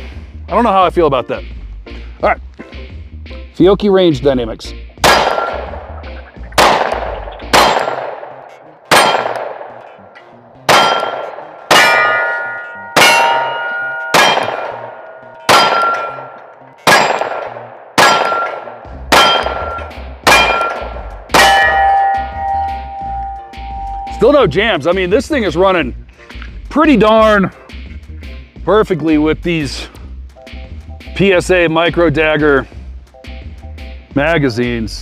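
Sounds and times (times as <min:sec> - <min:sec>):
pistol shots with metallic ringing: 0:05.0 - 0:05.9, 0:06.6 - 0:10.0, 0:10.7 - 0:23.4.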